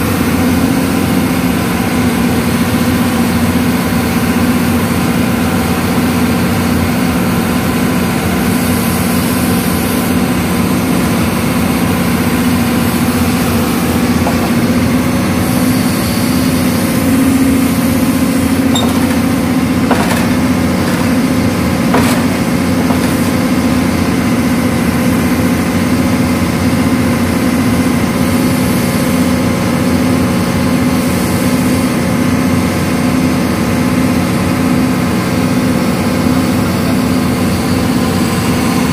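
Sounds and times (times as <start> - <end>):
excavator diesel engine running: 0.0 - 38.9
short knocks: 14.0 - 15.2, 18.6 - 23.8.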